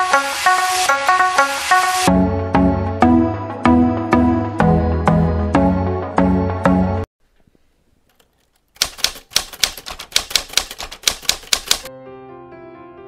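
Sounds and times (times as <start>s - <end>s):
typewriter key clicks: 8.1s - 11.9s.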